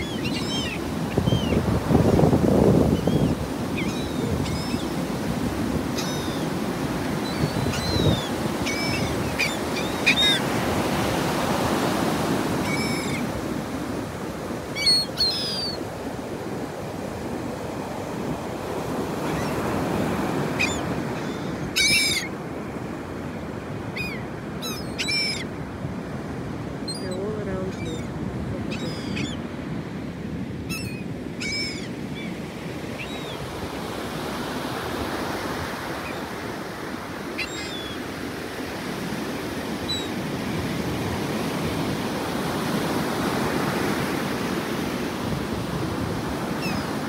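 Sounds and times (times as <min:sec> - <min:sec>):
gulls calling: 0:00.0 - 0:01.7, 0:02.9 - 0:13.3, 0:14.6 - 0:15.9, 0:19.2 - 0:22.4, 0:23.9 - 0:25.5, 0:26.8 - 0:29.5, 0:30.7 - 0:33.5, 0:37.1 - 0:38.1
ocean surf breaking: 0:00.0 - 0:15.2, 0:15.8 - 0:24.6, 0:25.5 - 0:31.4, 0:32.0 - 0:47.0.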